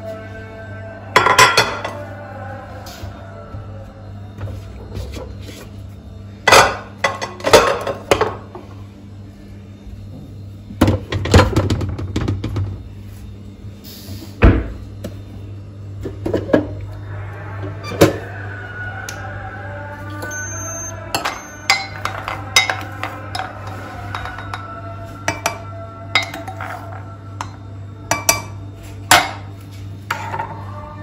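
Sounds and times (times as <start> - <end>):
objects clattering and knocking: 6.4 - 8.6, 10.8 - 12.9, 16.0 - 16.8, 21.1 - 27.1.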